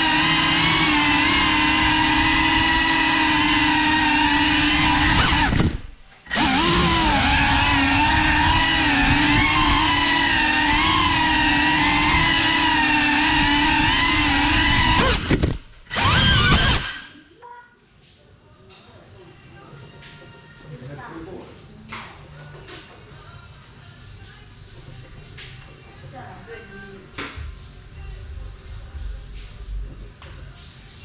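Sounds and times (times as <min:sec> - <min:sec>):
drone propellers whining: 0:00.0 - 0:17.1.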